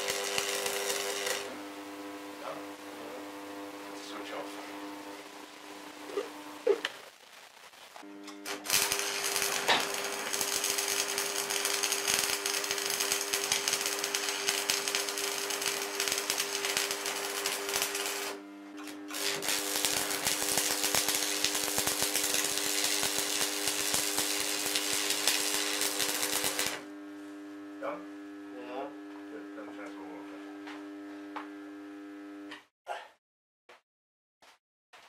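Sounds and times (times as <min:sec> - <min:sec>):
welding arc crackling and sizzling: 0:00.0 - 0:28.9
steady hum: 0:00.2 - 0:06.7.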